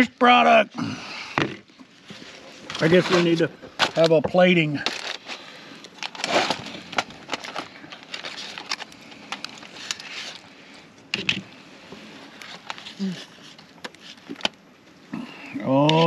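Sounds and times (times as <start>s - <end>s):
foil crinkling: 1.9s - 14.6s.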